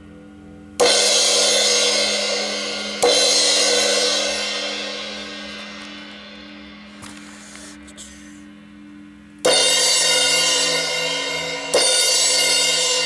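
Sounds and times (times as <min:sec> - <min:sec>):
crash cymbal struck with drumstick: 0:00.8 - 0:05.4, 0:09.4 - 0:13.0.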